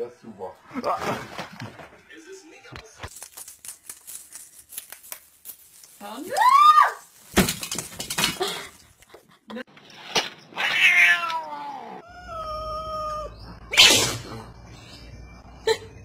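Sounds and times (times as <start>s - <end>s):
rustling: 2.8s - 9.0s
cat meowing: 10.6s - 13.4s.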